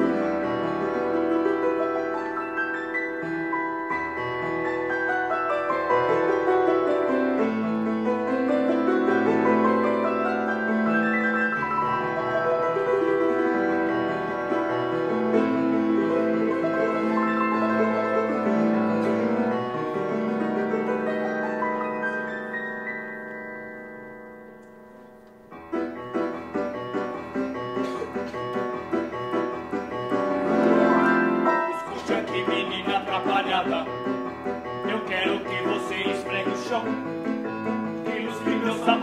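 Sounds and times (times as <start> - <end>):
piano music: 0.0 - 39.0.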